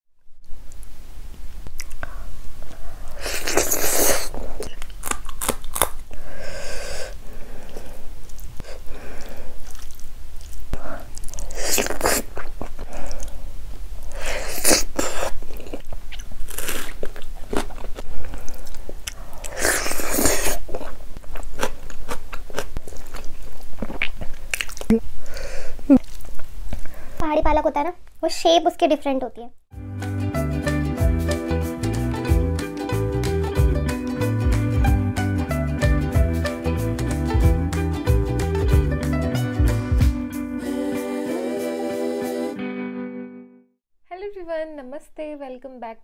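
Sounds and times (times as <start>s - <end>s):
crunchy bites: 3.3s - 6.2s, 14.5s - 24.9s
wet chewing: 3.3s - 6.2s, 7.7s - 13.4s, 14.0s - 25.0s, 25.9s - 26.9s.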